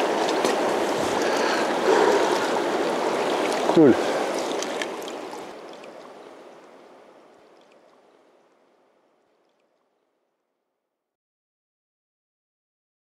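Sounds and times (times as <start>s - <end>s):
river water rippling over stones: 0.0s - 9.8s.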